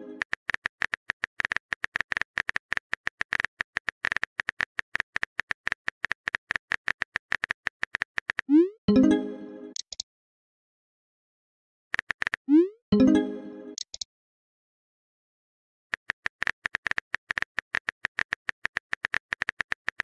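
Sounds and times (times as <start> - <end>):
message alert tone: 8.5 - 9.8, 12.5 - 13.8
keyboard typing clicks: 9.7 - 10.0, 12.0 - 12.4, 13.8 - 14.1, 15.9 - 20.0.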